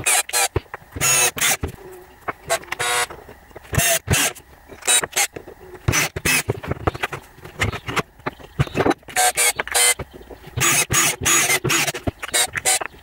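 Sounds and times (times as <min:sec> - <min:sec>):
hardware knocking and scraping: 0:04.7 - 0:13.0.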